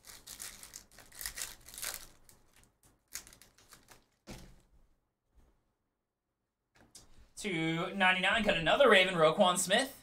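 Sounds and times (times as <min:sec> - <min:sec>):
foil wrapper tearing and crinkling: 0:00.0 - 0:04.3.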